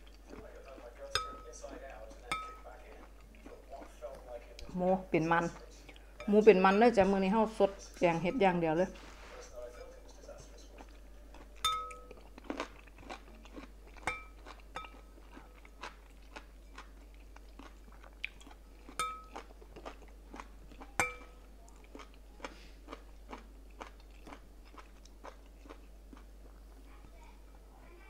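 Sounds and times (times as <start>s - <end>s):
chewing and crunching: 0.0s - 4.8s, 9.8s - 27.3s
metal spoon clinking on glass bowl: 1.1s - 1.6s, 2.3s - 2.7s, 11.6s - 12.2s, 14.0s - 15.0s, 19.0s - 19.4s, 21.0s - 21.4s.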